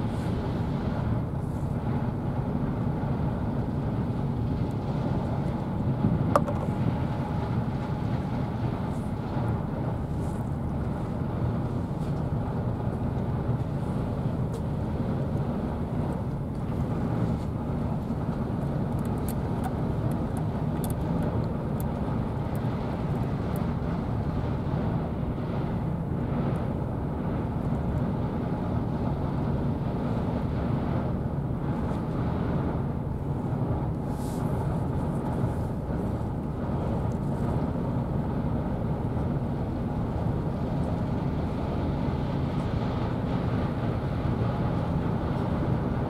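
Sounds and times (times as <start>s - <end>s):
low outdoor rumble: 0.0s - 46.0s.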